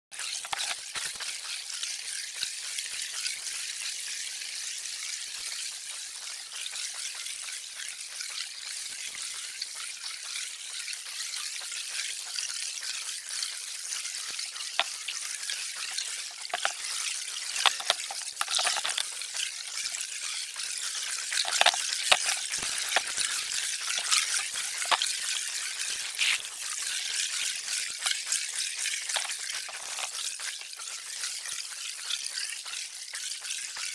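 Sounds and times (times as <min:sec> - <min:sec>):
bubbles popping and crackling: 0:00.2 - 0:01.5, 0:14.3 - 0:31.2.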